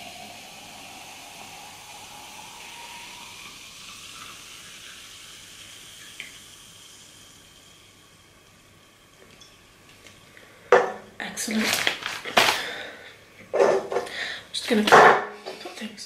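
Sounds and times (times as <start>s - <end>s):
soda pouring and fizzing: 0.0s - 10.7s, 11.3s - 13.1s.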